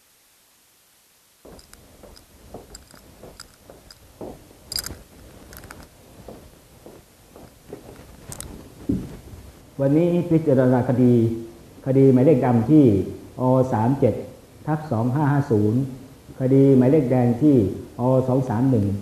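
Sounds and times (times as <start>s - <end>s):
cloth rustling: 1.4s - 9.6s
footsteps: 1.4s - 9.6s
furniture knocks and clicks: 1.5s - 9.3s.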